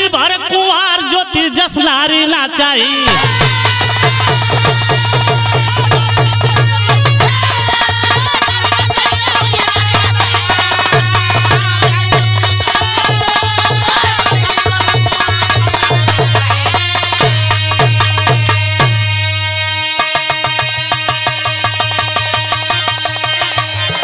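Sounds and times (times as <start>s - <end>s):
hand drum rhythm: 3.0s - 19.2s.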